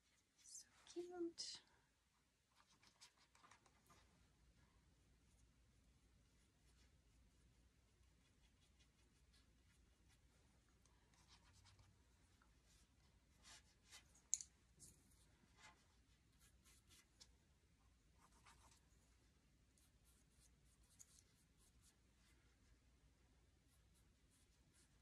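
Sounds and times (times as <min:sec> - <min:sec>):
paintbrush scratchy strokes: 0:05.2 - 0:14.2, 0:14.8 - 0:17.3, 0:18.1 - 0:22.8, 0:23.5 - 0:25.0.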